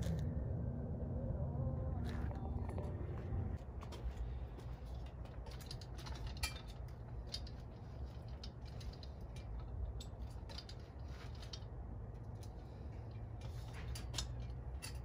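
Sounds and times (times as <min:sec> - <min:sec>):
low rumble: 0:00.0 - 0:14.8
metallic clicks and rattles: 0:04.8 - 0:15.0.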